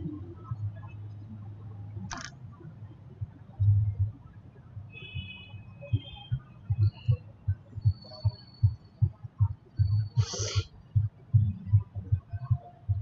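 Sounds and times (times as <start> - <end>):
short hiss: 10.2 - 10.7.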